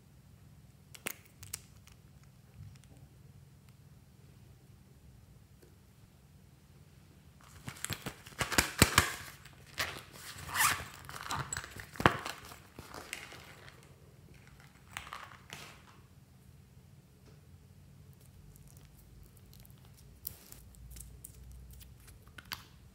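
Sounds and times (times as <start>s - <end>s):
plastic pencil case crinkling: 7.4s - 16.0s
zip opening: 10.4s - 11.3s.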